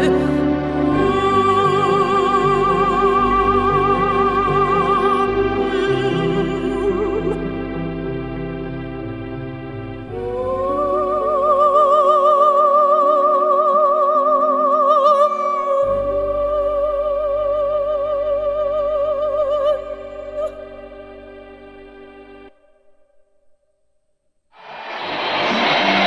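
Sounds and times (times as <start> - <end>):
operatic voice singing with vibrato: 0.0 - 7.5, 10.1 - 20.8.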